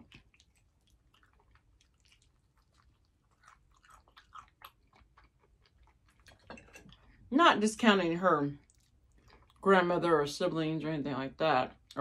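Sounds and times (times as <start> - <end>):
biting and chewing: 0.0 - 7.1.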